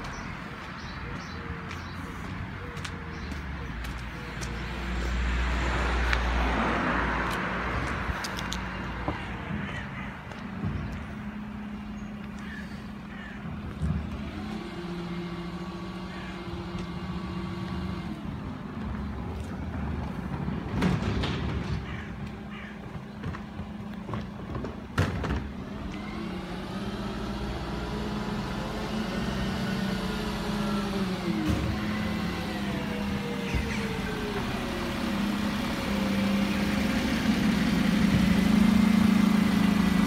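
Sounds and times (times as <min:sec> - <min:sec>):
truck diesel engine running: 0:08.9 - 0:20.8, 0:21.9 - 0:40.0
wheelie bins banging: 0:20.3 - 0:22.2.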